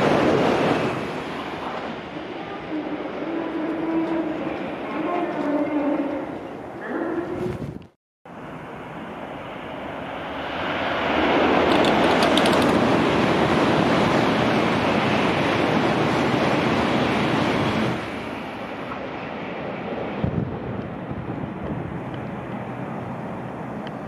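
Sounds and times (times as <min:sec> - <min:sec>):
train passing at speed: 0:00.0 - 0:07.4, 0:08.3 - 0:24.0.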